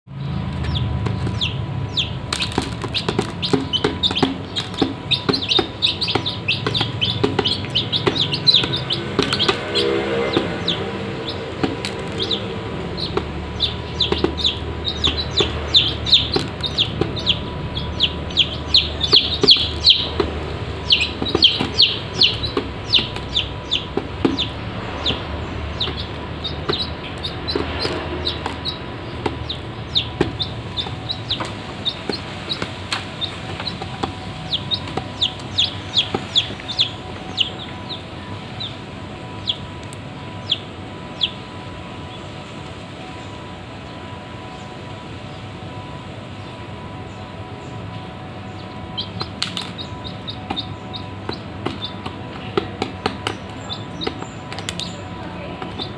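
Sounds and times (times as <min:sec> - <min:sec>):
chicks peeping: 0:00.1 - 0:42.5, 0:46.4 - 0:55.9
beaks pecking in metal bowl: 0:00.4 - 0:38.0, 0:49.0 - 0:55.9.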